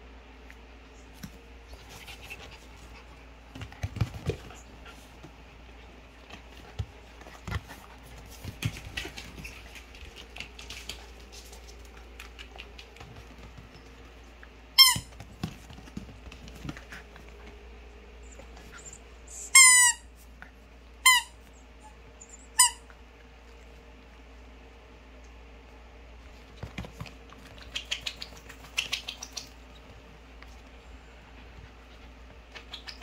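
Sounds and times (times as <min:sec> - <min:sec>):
paws and ball knocking and scuffling: 0:01.0 - 0:19.0, 0:26.2 - 0:33.0
rubber ball squeak: 0:19.4 - 0:20.0.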